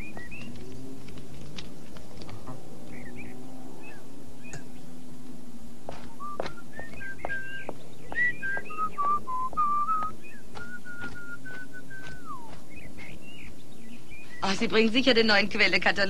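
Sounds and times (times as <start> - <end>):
birds chirping faintly: 0.0 - 16.0
person whistling a tune: 8.2 - 12.5.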